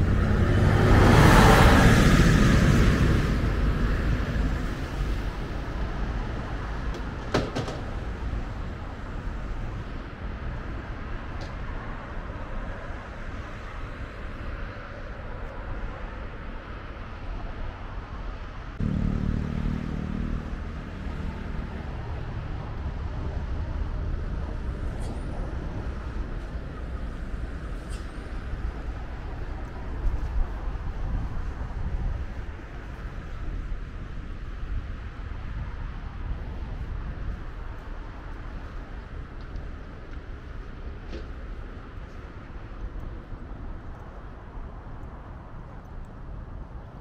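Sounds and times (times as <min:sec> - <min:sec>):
vehicle passing: 0:00.0 - 0:10.0, 0:18.8 - 0:30.3
low engine hum: 0:00.0 - 0:14.2, 0:18.7 - 0:47.0
low traffic rumble: 0:00.0 - 0:47.0.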